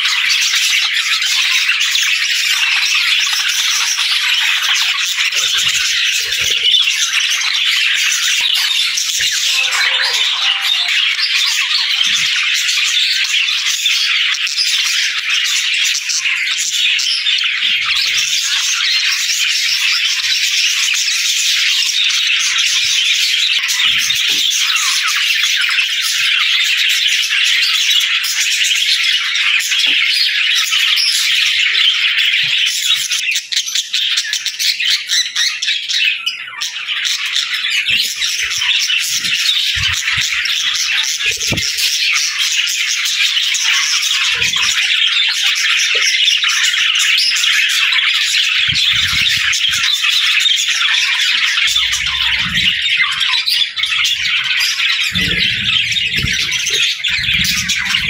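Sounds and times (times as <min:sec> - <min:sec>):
budgerigars chattering and chirping: 0:00.0 - 0:58.0.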